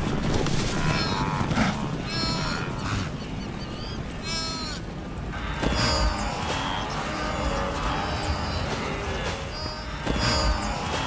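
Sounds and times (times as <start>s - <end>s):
animal bleating: 0.8s - 3.2s, 4.2s - 4.9s.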